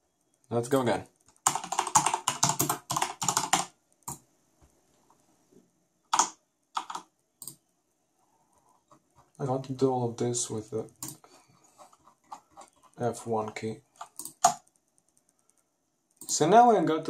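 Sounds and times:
mechanical keyboard typing: 0:00.4 - 0:04.2, 0:06.1 - 0:07.6, 0:11.8 - 0:15.6.

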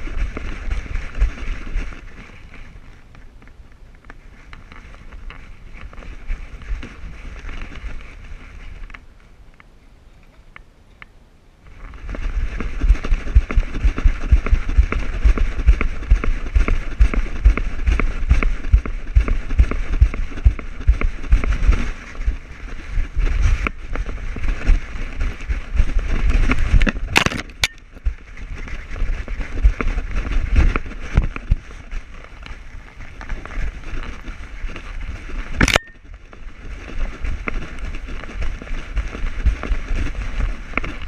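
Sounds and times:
rough rustling: 0:00.0 - 0:09.7, 0:11.6 - 0:41.0
thumps of dog strides: 0:11.9 - 0:32.0.

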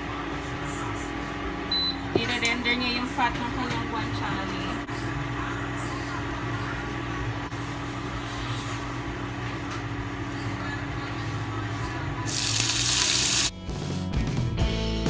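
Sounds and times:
cooktop electrical hum: 0:00.0 - 0:13.5
bacon sizzling in hot oil: 0:12.3 - 0:13.5.

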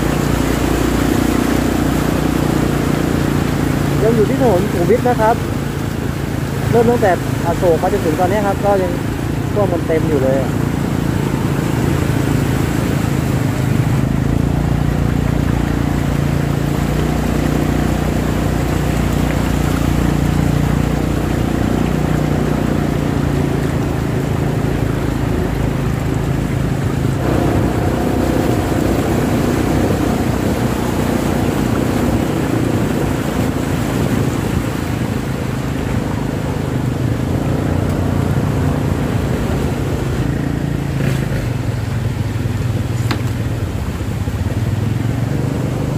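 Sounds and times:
motorcycle engine running: 0:00.0 - 0:45.9
water washing around wheels: 0:00.0 - 0:45.9.

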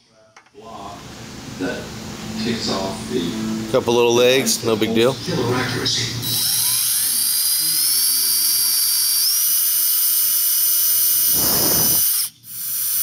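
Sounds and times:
power drill boring through wood: 0:06.4 - 0:13.0.

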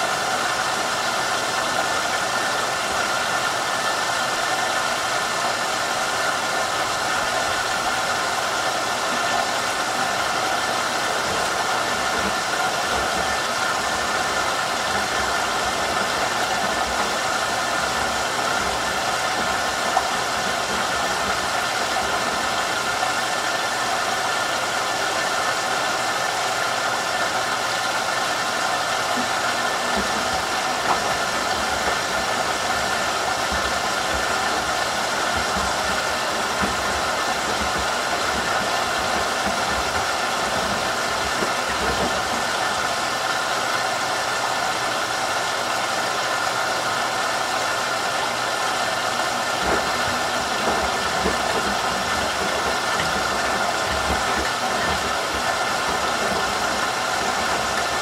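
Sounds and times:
washer drum turning: 0:00.0 - 0:58.0
water sloshing in washer: 0:00.0 - 0:58.0.

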